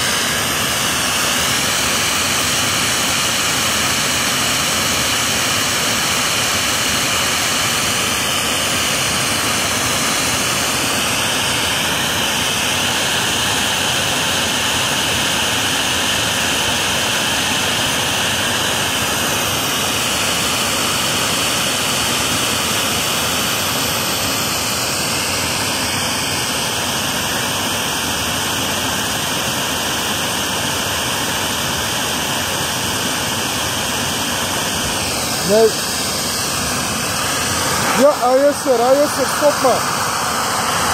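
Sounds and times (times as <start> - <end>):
compressed air hissing: 34.4 - 40.9.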